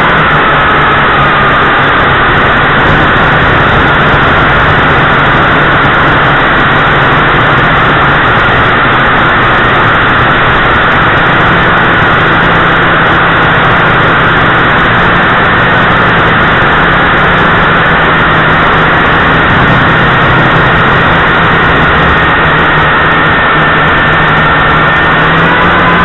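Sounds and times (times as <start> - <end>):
drone motors buzzing: 0.0 - 26.0.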